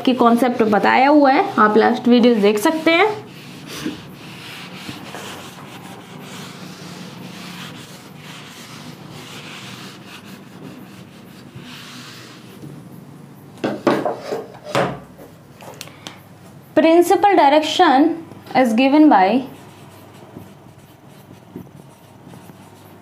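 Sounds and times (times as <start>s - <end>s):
duster rubbing whiteboard: 0.0s - 12.7s, 13.7s - 14.8s, 19.4s - 23.0s
short scrapes and knocks: 13.6s - 15.0s.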